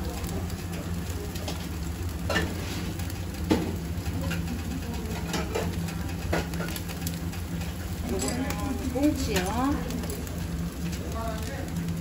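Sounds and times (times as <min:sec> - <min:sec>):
fish skin crackling and popping: 0:00.0 - 0:12.0
low mechanical hum: 0:00.0 - 0:12.0.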